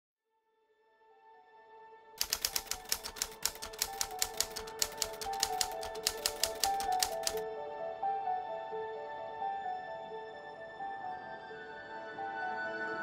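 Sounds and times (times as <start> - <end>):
soft background music: 0.4 - 13.0
typewriter keystroke clicks: 2.2 - 7.4.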